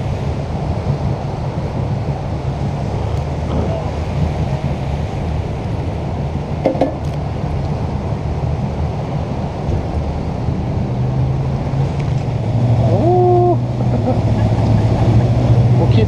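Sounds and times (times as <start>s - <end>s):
boat engine running: 0.0s - 16.0s
rushing water: 0.0s - 16.0s
wind noise on microphone: 0.0s - 16.0s.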